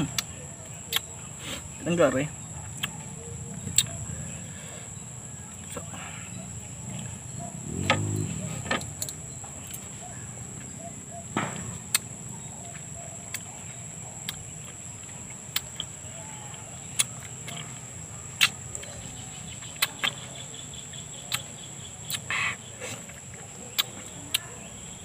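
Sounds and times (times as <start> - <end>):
wet mouth clicks eating fruit: 0.9 - 1.1, 2.8 - 3.0, 3.6 - 4.0, 14.2 - 14.4, 15.5 - 15.9, 17.0 - 17.7, 18.4 - 18.9, 19.7 - 20.2, 21.3 - 22.4, 23.1 - 24.4
high-pitched insect drone: 7.6 - 8.8.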